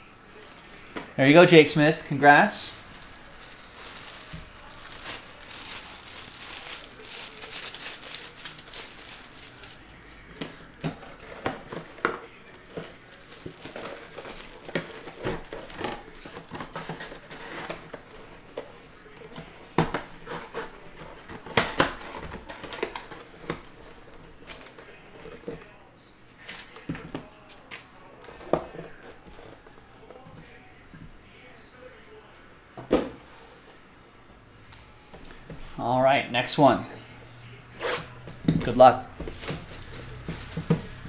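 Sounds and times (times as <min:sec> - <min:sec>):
plastic wrapping crinkling: 0:00.3 - 0:18.5, 0:38.4 - 0:41.0.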